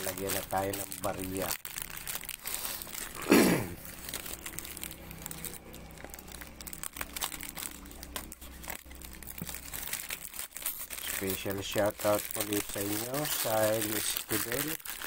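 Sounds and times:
plastic wrapping crinkling: 0.0s - 15.0s.

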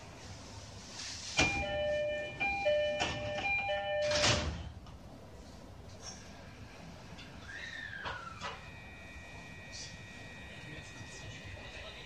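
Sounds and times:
sliding doors shutting: 1.0s - 4.8s.

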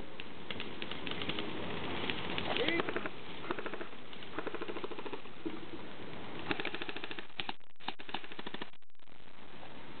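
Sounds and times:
airsoft rifles firing full-auto: 6.4s - 8.8s.

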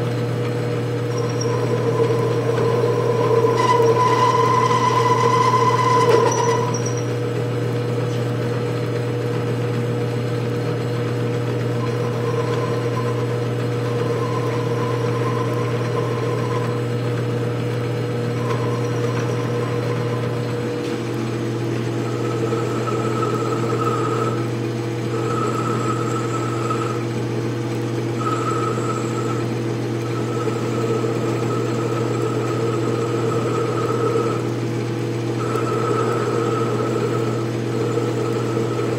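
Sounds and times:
metal lathe motor hum: 0.0s - 38.9s
high whine from cutting: 1.1s - 7.2s, 11.7s - 17.0s, 18.3s - 27.1s, 35.4s - 38.9s.

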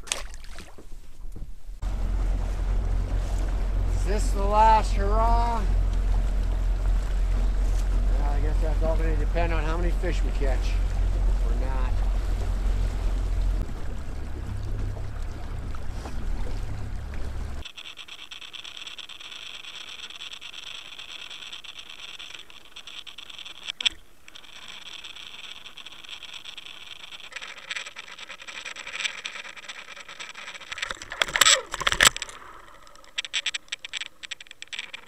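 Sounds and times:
steady high whine: 1.7s - 15.8s
water rushing past: 1.8s - 17.7s
knocks and scrapes on rocks: 17.6s - 35.0s.

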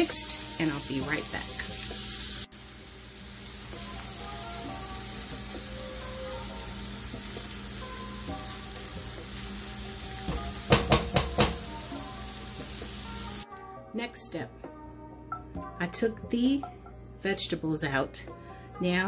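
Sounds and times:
vegetables sizzling in a skillet: 0.0s - 13.4s.

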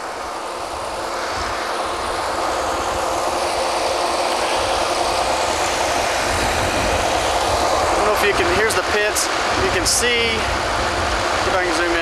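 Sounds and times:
drilling rig machinery rumble: 0.0s - 12.0s.

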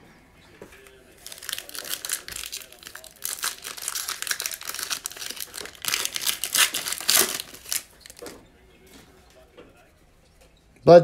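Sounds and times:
foil wrapper tearing and crinkling: 1.2s - 8.3s.

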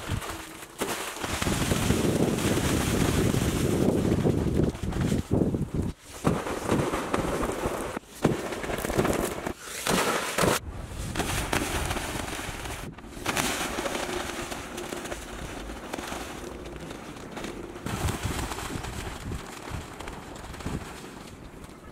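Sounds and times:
water splashing in pool: 0.0s - 4.9s, 6.1s - 16.5s.

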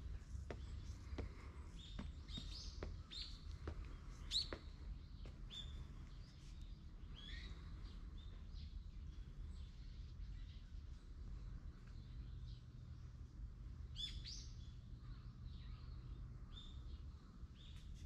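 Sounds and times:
small birds chirping: 0.0s - 18.0s
footsteps on stone: 0.2s - 5.4s.

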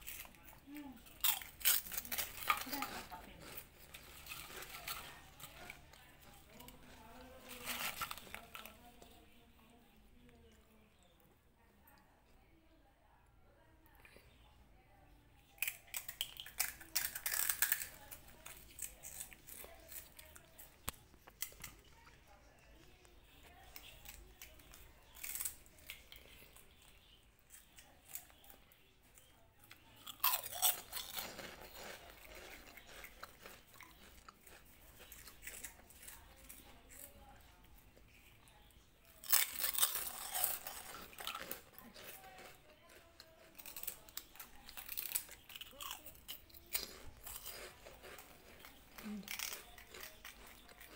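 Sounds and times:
kitten crunching snack: 0.0s - 9.3s, 15.6s - 22.2s, 23.4s - 38.4s, 39.2s - 50.9s.

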